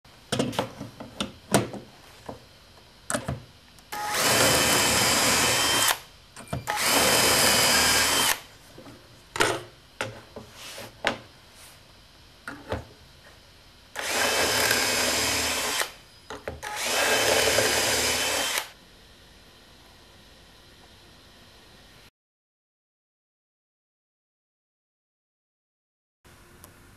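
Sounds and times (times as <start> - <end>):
cordless drill whining: 3.9 - 6.0, 6.6 - 8.4, 14.0 - 16.0, 16.6 - 18.7.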